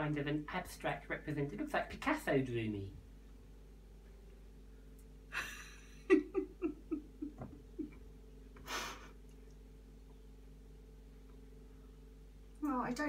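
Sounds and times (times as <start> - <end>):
woman laughing: 5.3 - 8.0, 8.7 - 9.1.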